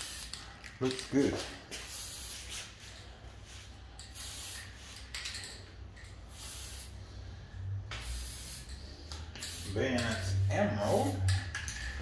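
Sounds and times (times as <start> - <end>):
spray paint can hissing: 0.0 - 0.4, 1.7 - 2.8, 4.0 - 5.4, 6.1 - 7.0, 7.9 - 12.0.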